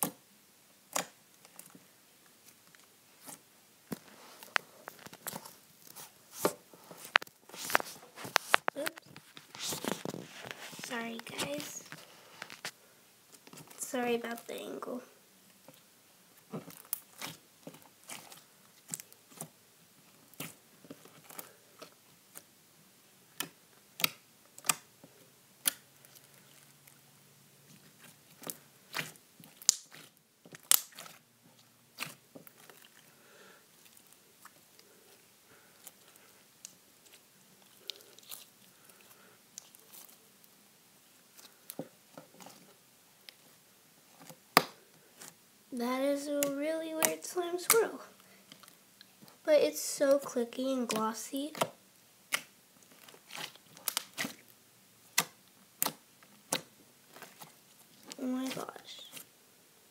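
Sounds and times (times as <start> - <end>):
slime clicking and popping: 28.4 - 31.2.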